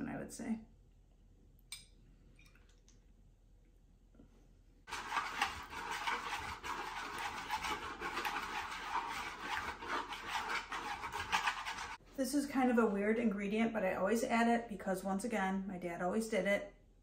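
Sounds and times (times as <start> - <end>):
utensil scraping wooden bowl: 4.9 - 12.0.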